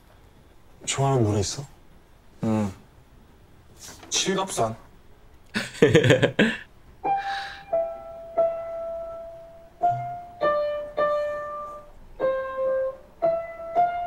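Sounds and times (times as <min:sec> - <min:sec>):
slow piano melody: 0:07.0 - 0:14.0.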